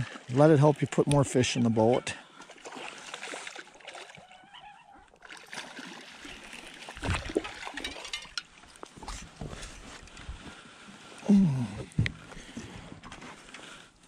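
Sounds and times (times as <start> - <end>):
water splashing and dripping: 0.0 - 4.4, 5.1 - 10.4.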